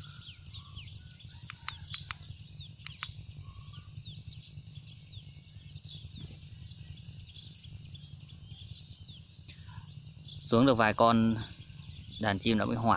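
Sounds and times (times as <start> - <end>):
sparrows chirping: 0.0 - 12.9
steady high whine: 0.0 - 12.9
sharp clicks: 1.4 - 3.2.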